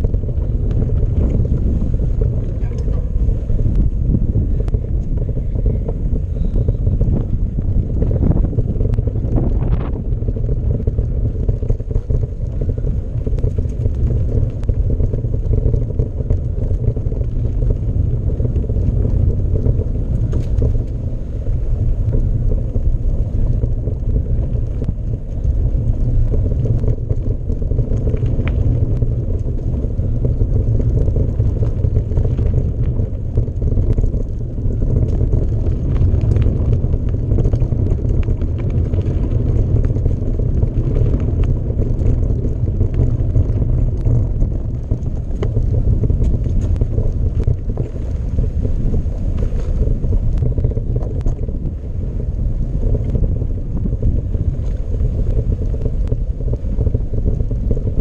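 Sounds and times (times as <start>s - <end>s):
faint rattles: 0.0s - 43.1s
wind buffeting microphone: 0.0s - 58.0s.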